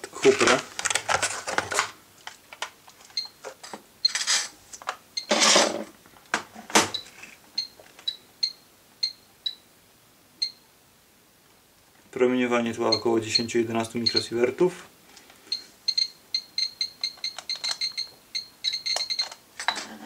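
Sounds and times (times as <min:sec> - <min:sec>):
radiation meter short high beeps: 0:10.4 - 0:10.6, 0:12.9 - 0:14.3, 0:15.5 - 0:19.4.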